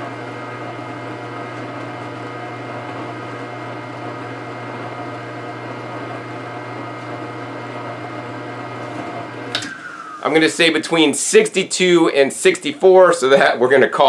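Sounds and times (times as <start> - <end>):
juicer motor hum: 0.0 - 10.8.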